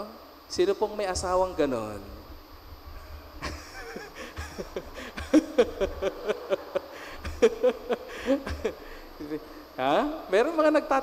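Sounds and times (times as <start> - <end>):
man laughing into microphone: 3.4 - 9.1.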